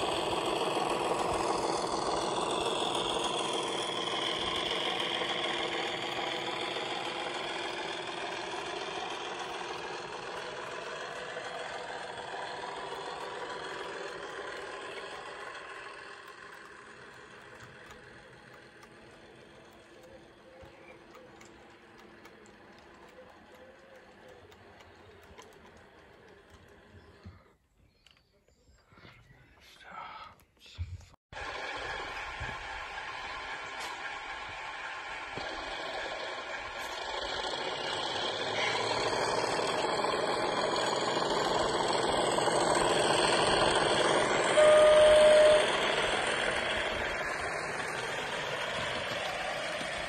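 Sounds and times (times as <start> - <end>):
model train wagons rolling: 0.0 - 27.5, 31.4 - 50.0
steady running hum: 0.0 - 28.2, 29.4 - 50.0
wheels clicking over rail joints: 0.0 - 28.4, 31.4 - 50.0
locomotive horn blast: 44.2 - 46.9.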